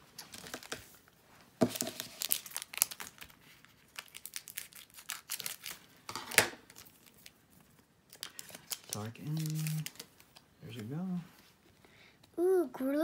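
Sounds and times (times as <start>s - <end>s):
foil wrapper crinkling: 1.7s - 5.9s, 6.6s - 10.4s.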